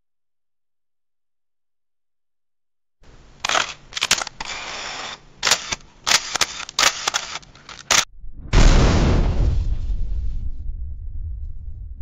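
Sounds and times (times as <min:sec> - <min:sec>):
camera winding noise: 0:03.3 - 0:08.1
camera mechanical clicks: 0:03.4 - 0:08.1.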